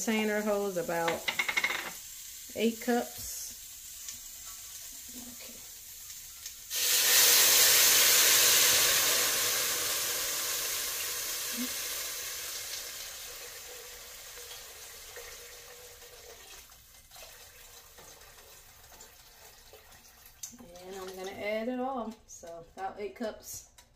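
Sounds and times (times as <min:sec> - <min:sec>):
liquid rushing and hissing in hot pot: 0:02.0 - 0:20.4.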